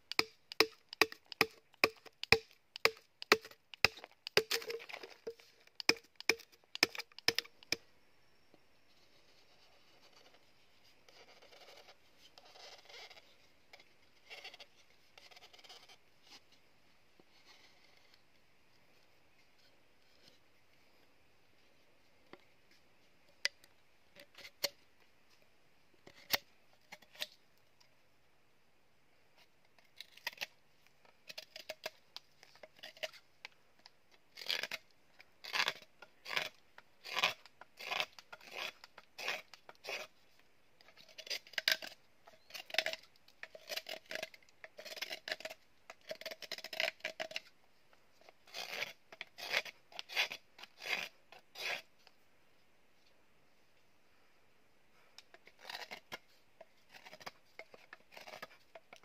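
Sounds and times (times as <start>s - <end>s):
knife whittling bamboo: 0.1s - 7.8s, 34.4s - 34.8s, 35.4s - 40.1s, 41.0s - 47.5s, 48.5s - 51.9s.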